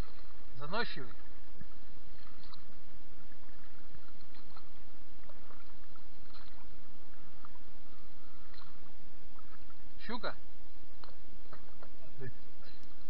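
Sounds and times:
water rushing around boat: 0.0 - 13.0
small clicks and splashes: 1.0 - 2.8, 3.4 - 7.7, 8.3 - 9.8, 11.0 - 12.0.

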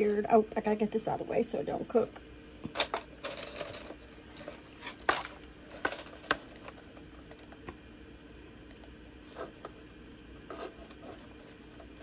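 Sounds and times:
small objects clicking and knocking: 2.6 - 4.1.

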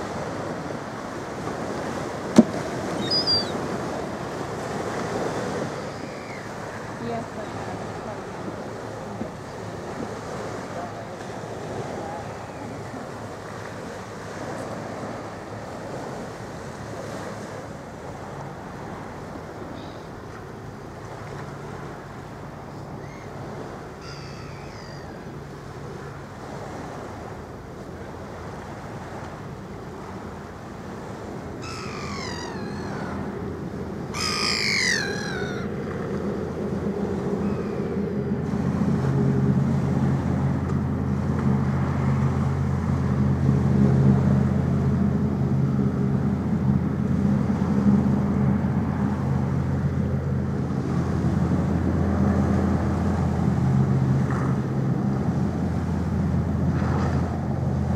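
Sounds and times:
ship engines humming: 0.0 - 57.9
water lapping: 0.0 - 57.9
wind: 0.0 - 57.9
gulls calling: 1.6 - 8.6, 22.6 - 25.5, 31.1 - 38.1.

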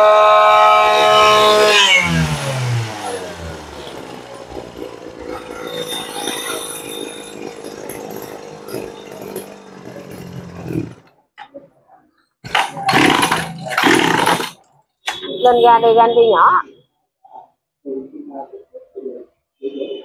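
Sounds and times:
brush-cutter engine revving and idling: 0.0 - 11.1, 12.5 - 14.6.

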